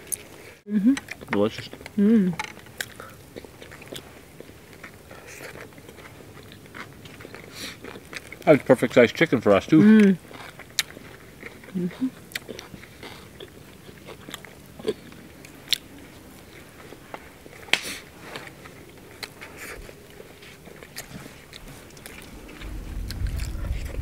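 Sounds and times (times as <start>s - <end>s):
chewing crispy chicken: 0.0s - 24.0s
low rumble: 21.6s - 24.0s.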